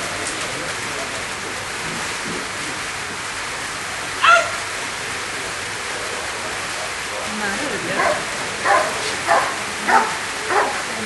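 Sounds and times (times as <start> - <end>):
rain hiss: 0.0 - 11.0
dog barking high-pitched: 4.2 - 4.6, 8.0 - 10.9.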